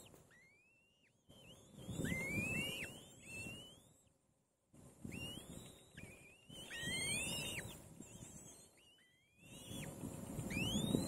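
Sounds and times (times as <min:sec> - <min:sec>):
chicks whistled begging calls: 0:00.0 - 0:04.1, 0:05.0 - 0:11.0.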